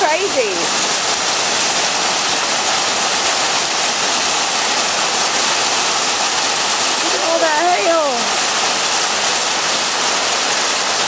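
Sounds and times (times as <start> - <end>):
hail and heavy rain: 0.0 - 11.0.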